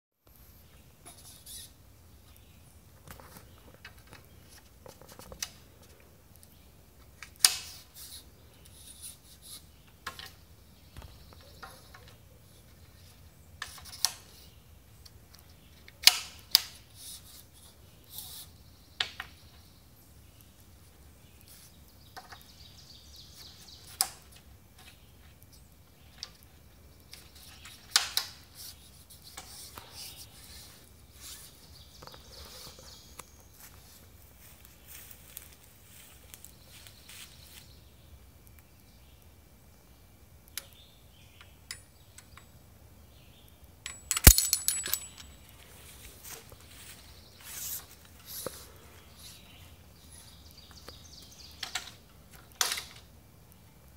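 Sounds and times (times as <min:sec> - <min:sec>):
sharp clicks and knocks: 0:43.8 - 0:45.4.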